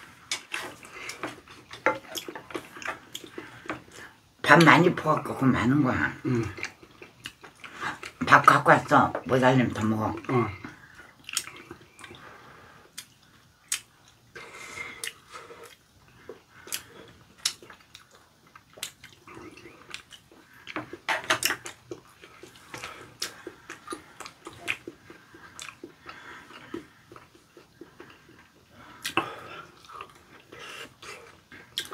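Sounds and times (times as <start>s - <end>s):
wet chewing: 0.2s - 4.1s, 10.2s - 12.3s, 12.9s - 31.9s.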